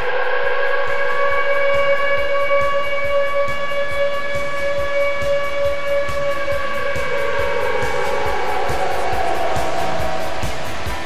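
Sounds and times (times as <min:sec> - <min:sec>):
fast clicking beat: 0:02.5 - 0:11.0.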